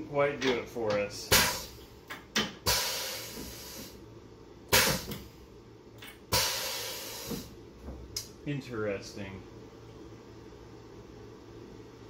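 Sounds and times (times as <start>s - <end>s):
air hiss bursts: 1.3s - 1.8s, 2.6s - 4.0s, 4.7s - 5.3s, 6.3s - 7.6s.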